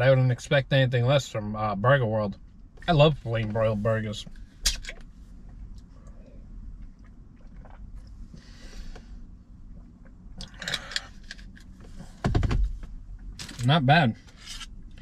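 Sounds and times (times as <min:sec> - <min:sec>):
dull low thump: 0:11.8 - 0:13.0.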